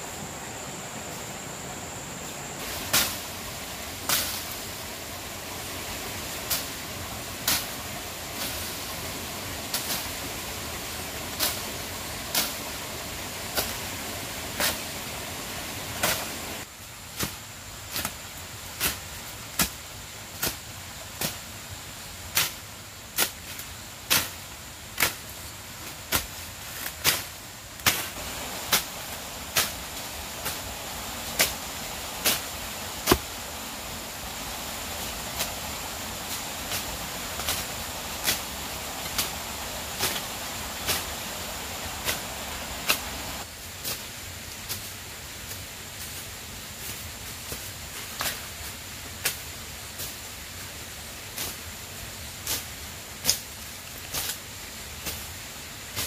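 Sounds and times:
hand tool chopping soil: 0:18.8 - 0:19.8, 0:20.4 - 0:20.6, 0:26.0 - 0:30.6, 0:31.3 - 0:33.4, 0:34.7 - 0:41.2.

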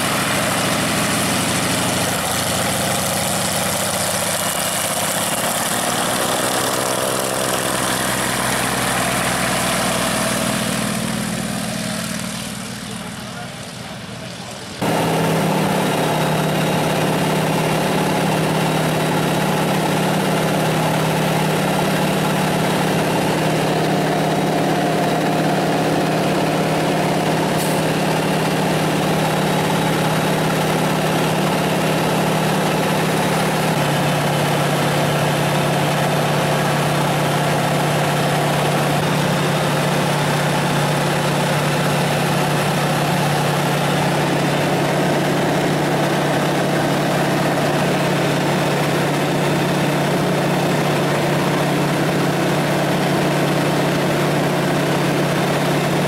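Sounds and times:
aircraft engine drone in cockpit: 0:14.8 - 0:56.0.

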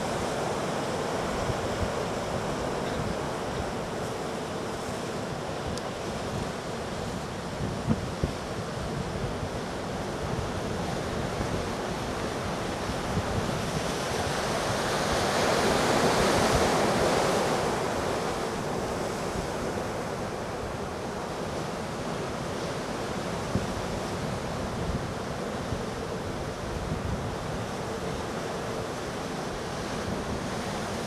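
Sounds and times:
heavy surf crashing on rocks: 0:00.0 - 0:31.0
wind buffeting microphone: 0:05.5 - 0:15.4.

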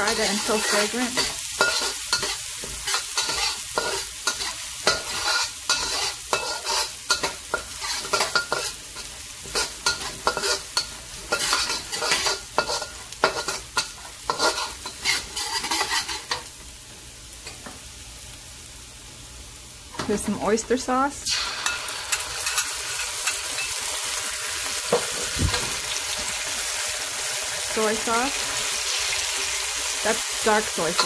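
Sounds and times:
metal spatula scraping wok: 0:00.0 - 0:16.5
garlic sizzling in hot oil: 0:00.0 - 0:31.0.

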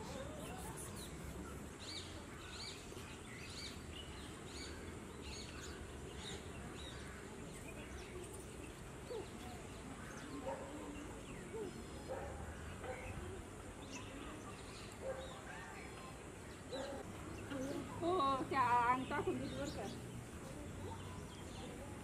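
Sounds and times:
small bird chirping: 0:00.0 - 0:12.0.

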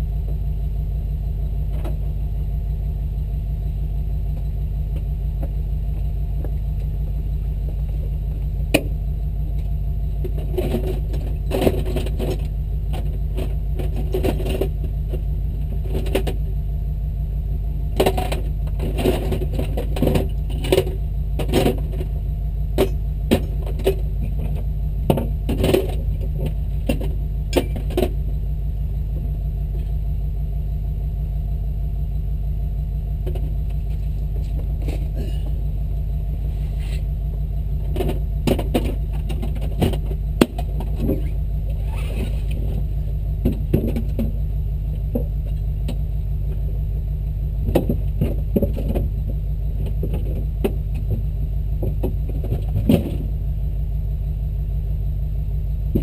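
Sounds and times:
engine running with low drone: 0:00.0 - 0:56.0
sharp clicks and knocks: 0:09.6 - 0:16.5, 0:18.0 - 0:22.1, 0:22.8 - 0:28.2, 0:33.2 - 0:35.2, 0:37.8 - 0:42.8, 0:43.4 - 0:46.6, 0:47.6 - 0:53.3.

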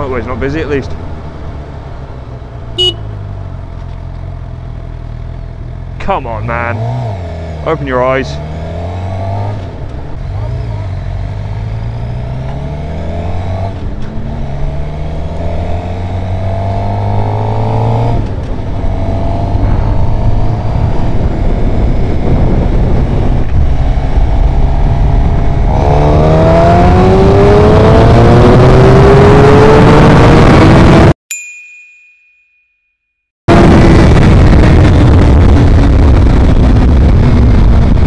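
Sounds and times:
motorcycle engine accelerating: 0:00.0 - 0:31.2, 0:33.5 - 0:38.0
rushing wind noise: 0:08.6 - 0:31.1, 0:33.5 - 0:38.0.

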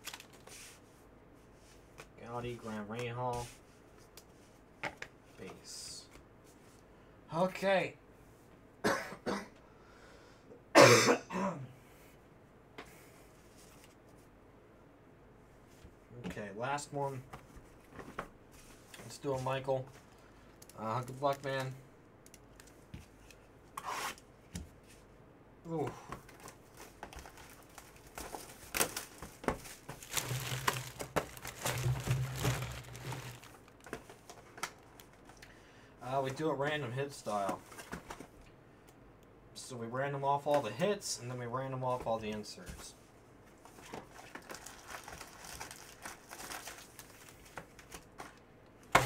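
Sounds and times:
plastic wrapping crinkling and tearing: 0:00.0 - 0:00.5, 0:26.7 - 0:35.4, 0:44.0 - 0:48.3
person coughing: 0:08.8 - 0:09.6, 0:10.7 - 0:11.8.

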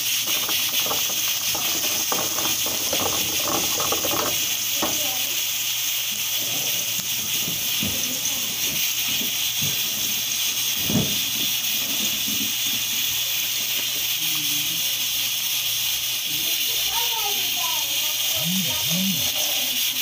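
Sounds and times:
wooden spoon knocking pot: 0:00.0 - 0:05.4
gas stove hissing: 0:00.0 - 0:20.0.

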